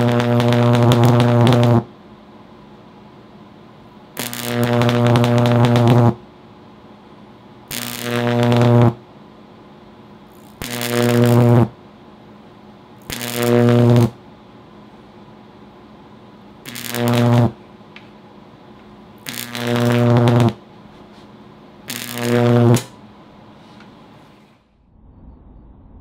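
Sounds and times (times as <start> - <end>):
electric arcs buzzing and crackling: 0.0 - 1.9, 4.2 - 6.2, 7.7 - 9.0, 10.3 - 11.8, 13.0 - 14.2, 16.6 - 17.6, 19.2 - 20.6, 21.8 - 23.0.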